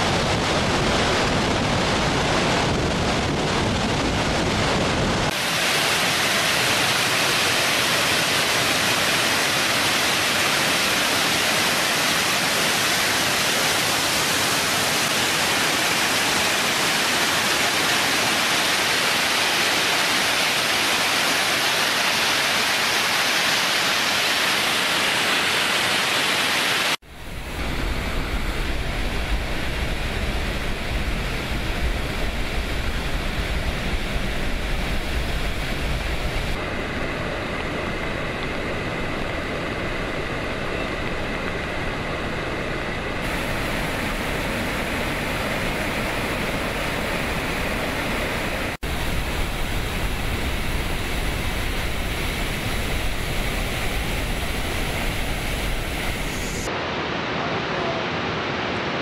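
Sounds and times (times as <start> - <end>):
water jetting with loud hiss: 5.3 - 36.7, 43.2 - 56.8.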